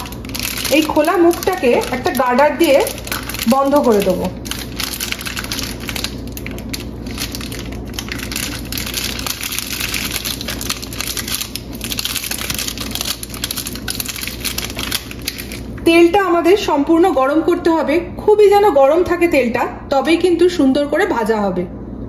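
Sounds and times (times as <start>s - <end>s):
plastic packet crinkling: 0.0s - 15.8s.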